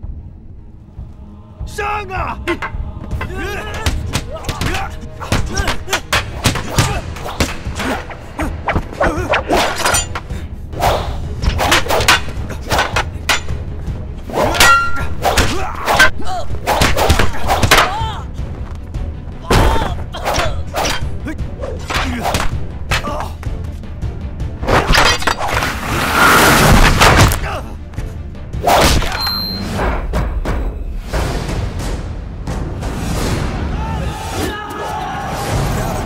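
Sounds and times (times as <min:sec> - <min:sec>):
film music: 0:00.0 - 0:36.0
wooden poles striking and clacking: 0:02.5 - 0:08.1, 0:08.7 - 0:10.4, 0:11.4 - 0:18.8, 0:21.8 - 0:23.8, 0:24.7 - 0:25.8.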